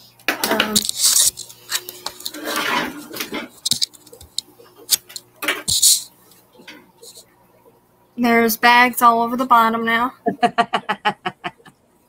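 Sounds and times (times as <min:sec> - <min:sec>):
camera handling rubbing: 0:00.8 - 0:02.5, 0:03.5 - 0:06.1.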